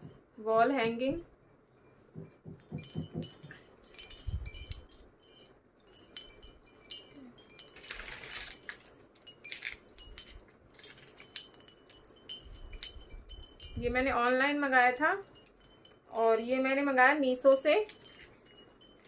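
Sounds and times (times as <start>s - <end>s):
small brass bells jingling: 2.0s - 19.0s
beads clicking: 2.2s - 13.8s, 17.8s - 19.0s.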